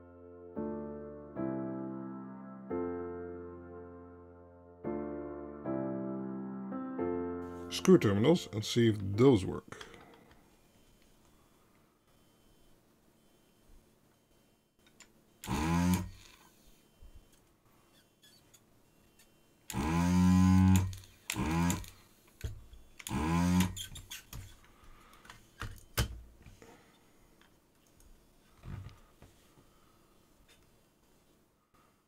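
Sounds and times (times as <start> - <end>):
vacuum pump humming: 15.4 - 16.3, 19.7 - 23.8.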